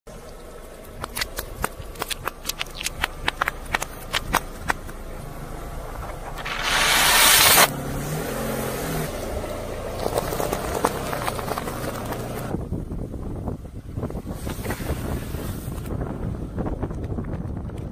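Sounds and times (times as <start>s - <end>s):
tyre crushing small objects: 0.9s - 4.9s
loud rushing burst: 6.3s - 7.7s.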